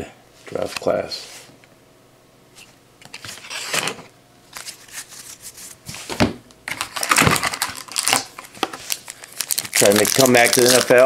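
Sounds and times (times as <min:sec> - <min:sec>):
cards rustling and tapping: 0:06.7 - 0:11.0
foil wrapper crinkling: 0:06.7 - 0:11.0.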